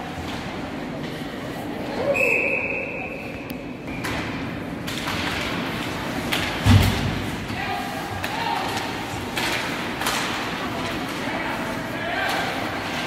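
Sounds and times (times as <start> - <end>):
hockey sticks and puck clacking: 3.9 - 13.0
heavy thud against rink boards: 6.3 - 7.4.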